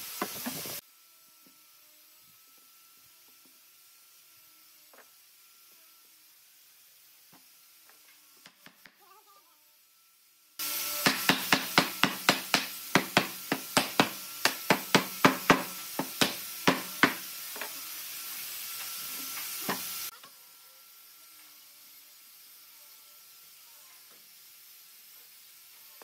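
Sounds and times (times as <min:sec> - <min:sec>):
steady hiss: 0:00.0 - 0:00.8, 0:10.5 - 0:20.1
hammer knocking on wood: 0:11.0 - 0:17.2.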